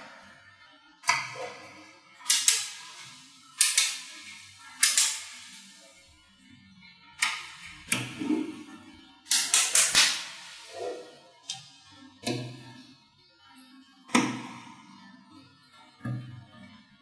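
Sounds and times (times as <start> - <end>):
magnetic balls snapping together: 2.2 - 5.7, 7.2 - 8.2, 9.3 - 10.7.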